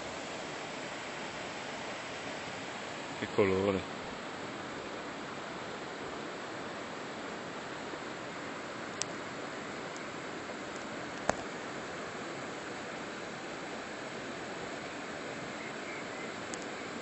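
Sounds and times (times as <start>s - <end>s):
river water rushing: 0.0s - 17.0s.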